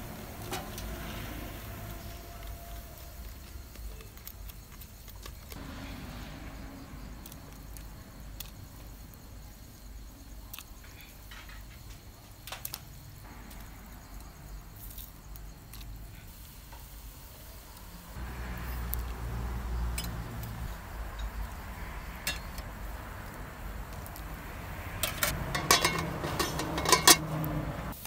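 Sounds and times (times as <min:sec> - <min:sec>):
water boiling hard: 0:00.0 - 0:03.2, 0:16.3 - 0:28.0
steady low rumble: 0:05.6 - 0:10.3, 0:18.2 - 0:28.0
spoon tapping bamboo strainer: 0:25.5 - 0:27.3.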